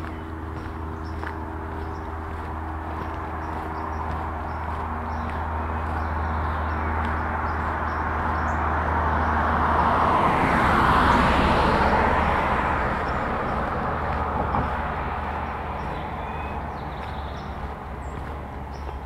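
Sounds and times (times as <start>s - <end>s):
footsteps on pavement: 0.0s - 19.0s
vehicle passing by: 0.0s - 19.0s.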